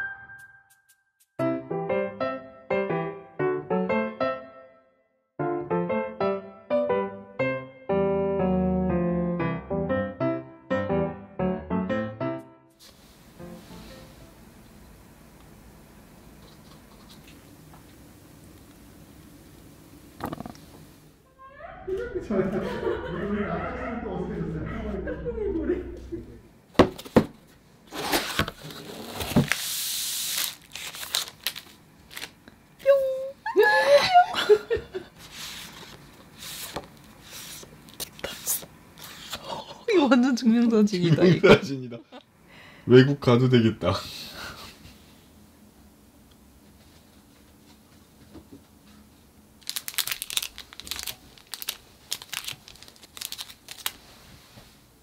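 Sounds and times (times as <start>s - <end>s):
bubble wrap crinkling: 28.2s - 32.5s, 49.6s - 54.6s.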